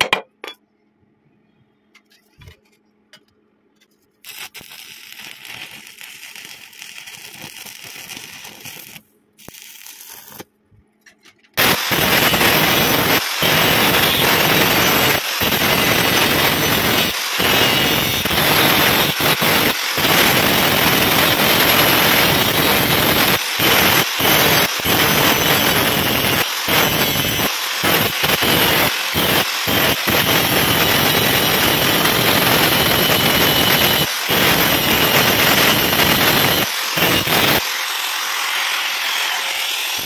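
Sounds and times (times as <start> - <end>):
angle grinder grinding metal: 11.6 - 40.0.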